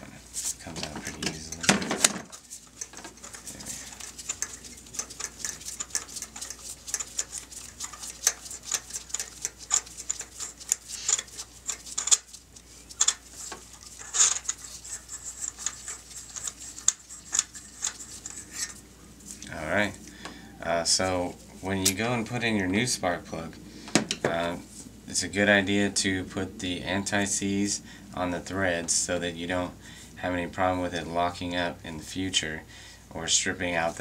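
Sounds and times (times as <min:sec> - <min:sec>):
ratchet clicking: 0:02.3 - 0:12.4, 0:13.0 - 0:18.8.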